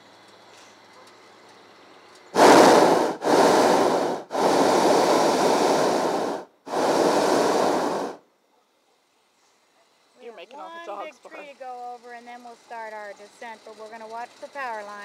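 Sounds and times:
propane burner hissing: 0:01.7 - 0:08.2.

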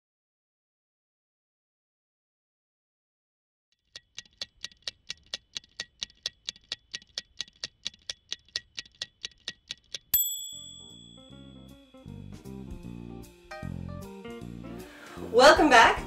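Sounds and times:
fast timer ticking: 0:03.8 - 0:11.5
bright bell ding: 0:10.2 - 0:12.0
plucked bass and guitar tune: 0:11.1 - 0:16.0.

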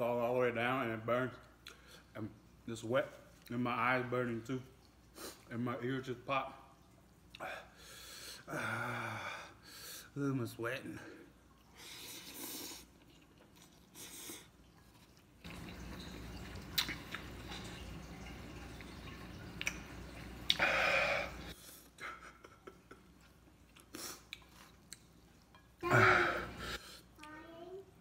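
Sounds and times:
man slurping noodles: 0:11.8 - 0:13.0
chewing with wet mouth clicks: 0:16.6 - 0:17.4, 0:19.6 - 0:20.6, 0:23.2 - 0:25.2.

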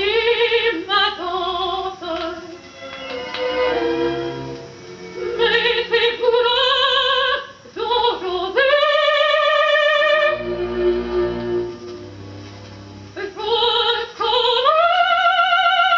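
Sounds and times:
woman singing opera: 0:00.0 - 0:02.6, 0:05.2 - 0:10.5, 0:13.2 - 0:15.9
musical accompaniment: 0:01.4 - 0:06.9, 0:10.0 - 0:14.4.

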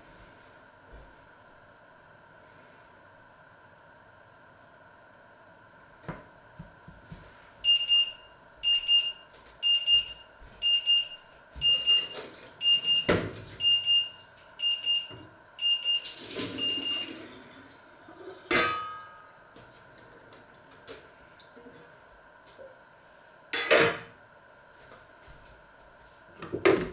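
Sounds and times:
kitchen timer beeping: 0:07.6 - 0:17.2.

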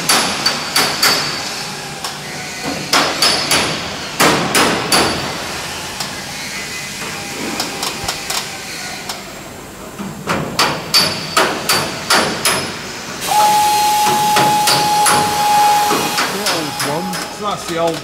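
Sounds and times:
steady whistling tone: 0:13.2 - 0:17.8.

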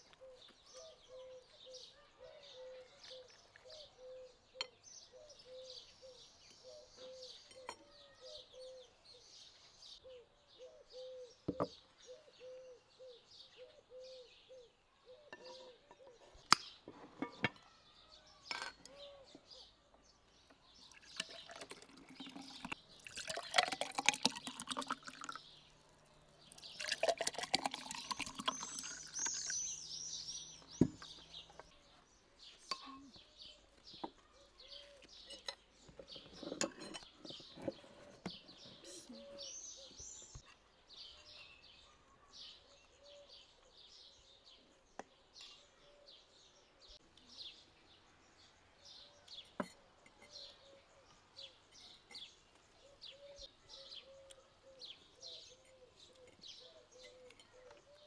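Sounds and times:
small birds chirping: 0:00.0 - 0:58.0
drink pouring into glass: 0:20.9 - 0:25.5, 0:26.5 - 0:30.0.

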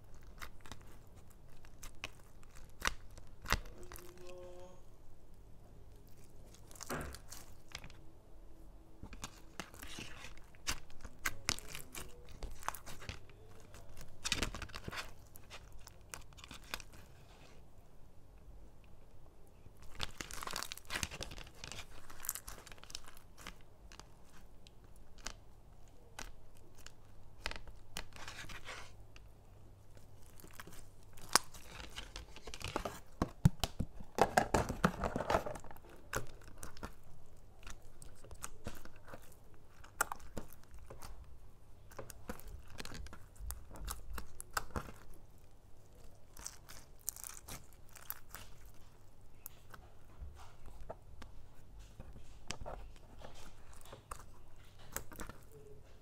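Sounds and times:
crunchy slime being squeezed: 0:00.0 - 0:04.8, 0:06.0 - 0:08.0, 0:09.1 - 0:17.0, 0:19.8 - 0:24.0, 0:30.2 - 0:49.8.

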